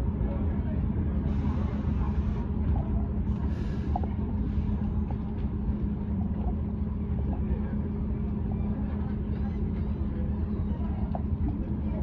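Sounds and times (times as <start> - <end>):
subway train humming: 0.0 - 12.0.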